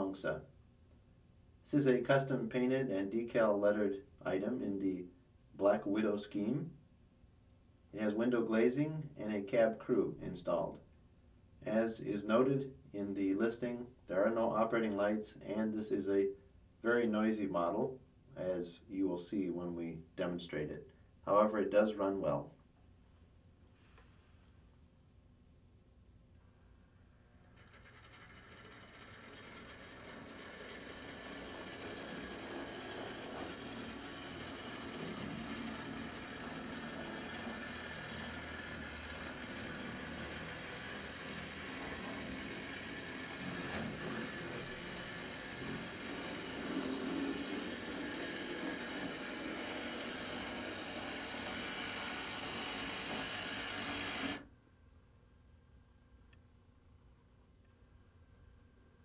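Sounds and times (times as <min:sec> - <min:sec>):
model locomotive motor running: 0:27.4 - 0:54.4.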